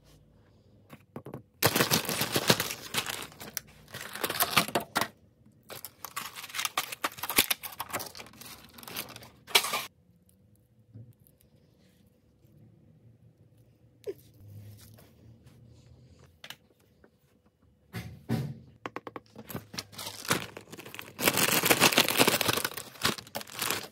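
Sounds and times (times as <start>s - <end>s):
packaging tearing and crinkling: 1.6s - 5.0s, 5.7s - 9.9s, 19.5s - 23.9s.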